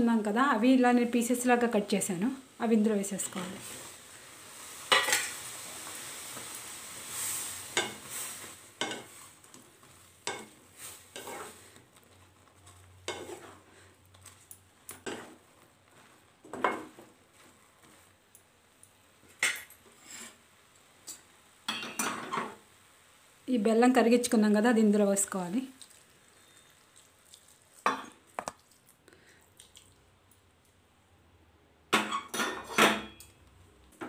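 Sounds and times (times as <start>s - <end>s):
spatula scraping and knocking pan: 4.9s - 14.4s, 15.0s - 18.0s.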